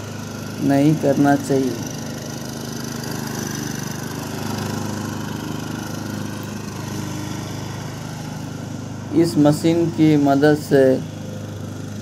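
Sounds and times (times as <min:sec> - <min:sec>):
lawn mower engine running: 0:00.0 - 0:12.0.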